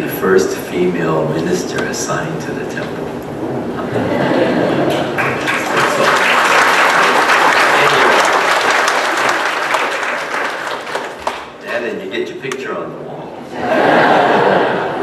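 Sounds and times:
congregation applauding: 0:04.7 - 0:11.6.

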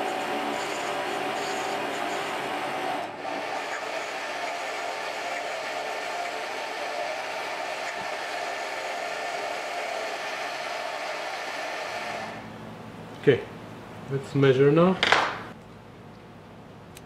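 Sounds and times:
metal lathe motor whirring: 0:00.0 - 0:12.4.

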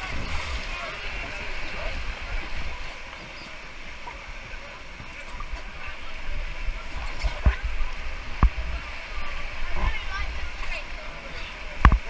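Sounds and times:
wind buffeting microphone: 0:00.0 - 0:03.0
river whitewater rushing: 0:00.0 - 0:12.0.

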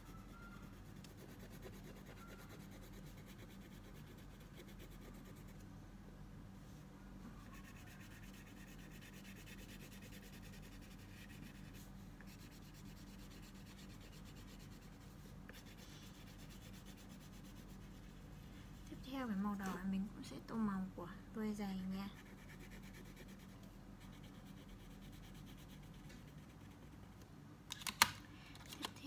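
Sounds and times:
low steady hum: 0:00.0 - 0:29.0
crayon scratching on paper: 0:00.1 - 0:05.6, 0:07.5 - 0:18.2, 0:22.1 - 0:27.0.

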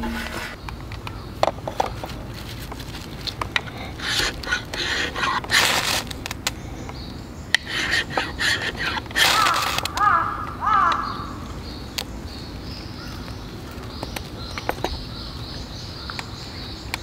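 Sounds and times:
knife shaving wooden stick: 0:02.4 - 0:06.2, 0:07.6 - 0:10.0.

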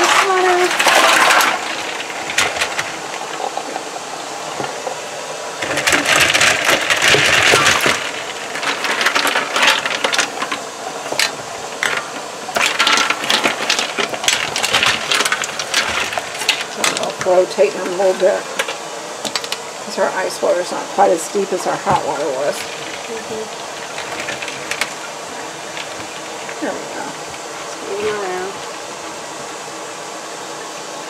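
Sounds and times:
ice cubes clinking in pot: 0:00.0 - 0:03.7, 0:05.6 - 0:19.6, 0:21.9 - 0:28.9
water sloshing: 0:21.4 - 0:29.6.

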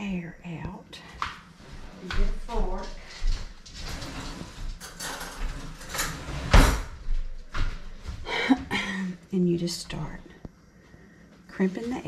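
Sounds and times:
kitchen drawer sliding: 0:03.7 - 0:07.0
cutlery rattling: 0:04.7 - 0:06.2.

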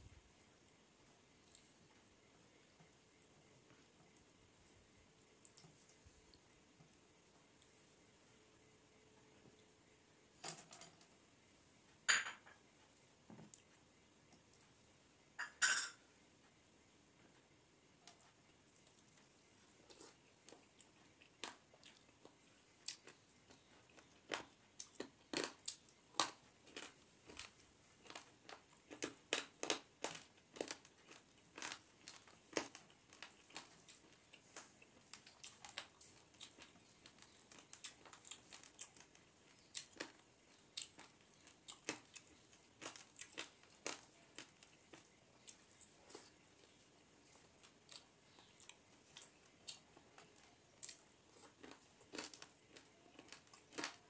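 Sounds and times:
chewing and lip-smacking: 0:18.2 - 0:54.0.

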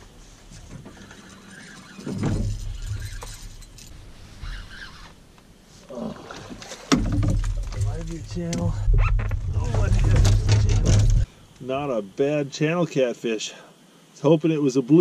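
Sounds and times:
low rumble: 0:07.4 - 0:11.3.

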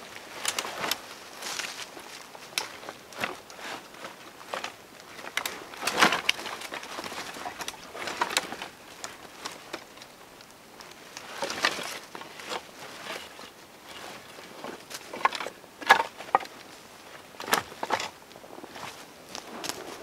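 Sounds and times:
sticks cracking and rustling: 0:00.1 - 0:20.0
sticks clattering together: 0:14.9 - 0:16.6.

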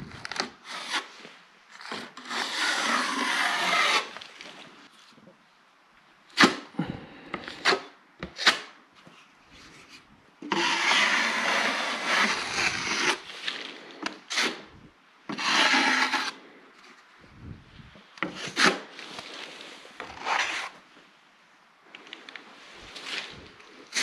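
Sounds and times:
taping knife scraping joint compound: 0:00.1 - 0:04.7, 0:06.4 - 0:14.7, 0:15.3 - 0:17.0, 0:18.2 - 0:19.3, 0:20.0 - 0:20.8, 0:23.1 - 0:24.0.

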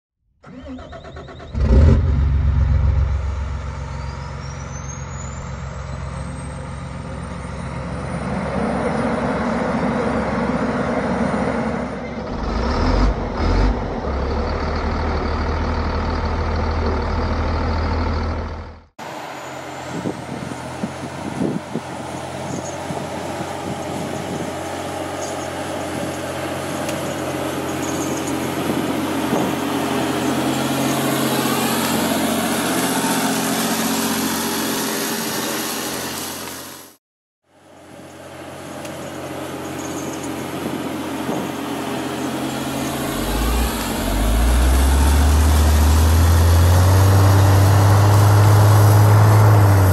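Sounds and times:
diesel engine running: 0:00.4 - 0:49.9
high whine: 0:38.0 - 0:49.9.

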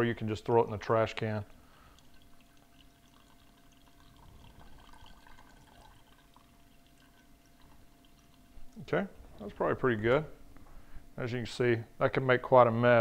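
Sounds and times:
liquid dripping and trickling: 0:00.8 - 0:10.2.

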